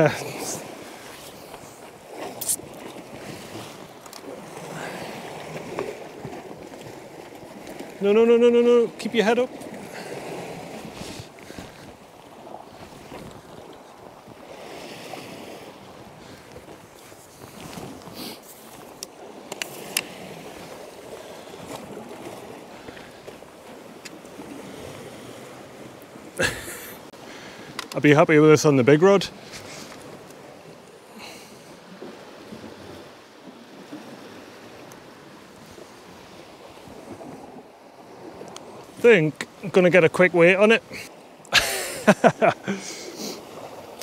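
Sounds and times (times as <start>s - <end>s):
water lapping against rocks: 0.0s - 44.0s
wind on microphone: 9.8s - 23.3s.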